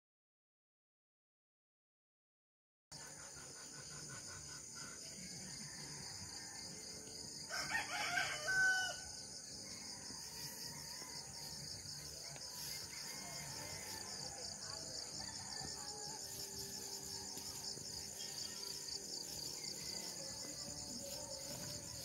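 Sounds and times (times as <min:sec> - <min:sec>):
insects chirring: 0:03.0 - 0:22.0
rooster crowing: 0:07.4 - 0:09.2.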